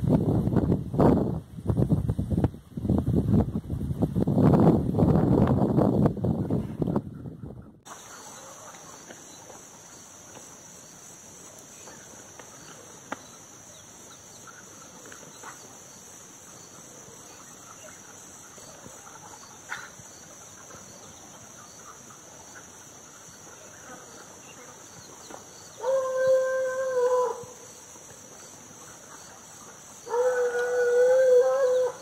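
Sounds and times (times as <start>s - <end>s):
wind on microphone: 0.0s - 7.9s
crickets droning: 7.8s - 32.0s.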